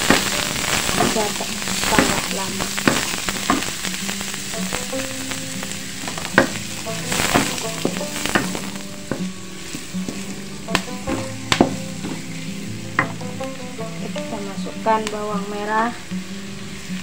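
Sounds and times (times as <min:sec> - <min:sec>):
vegetables sizzling in a wok: 0:00.0 - 0:17.0
wooden spatula scraping a pan: 0:06.1 - 0:13.4.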